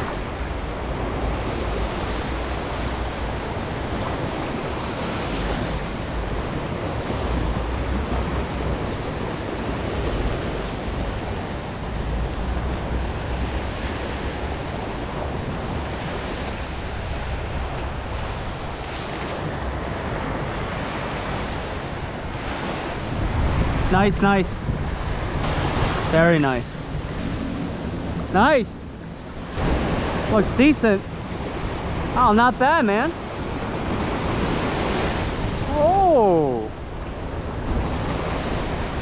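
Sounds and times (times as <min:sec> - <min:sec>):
wind buffeting microphone: 0:00.0 - 0:32.2
surf breaking on beach: 0:12.7 - 0:39.0.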